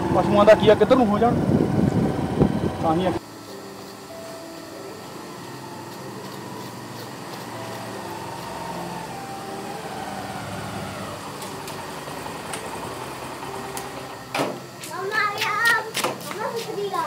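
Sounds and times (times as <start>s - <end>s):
motorcycle engine running: 0.0s - 3.2s, 5.5s - 14.3s.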